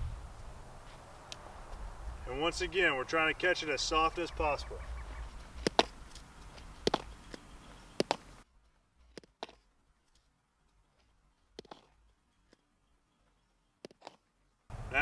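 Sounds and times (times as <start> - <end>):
ball popping into leather glove: 5.6 - 6.2, 6.8 - 7.4, 8.0 - 8.3
ball bouncing off dirt: 5.6 - 8.4, 9.1 - 9.6.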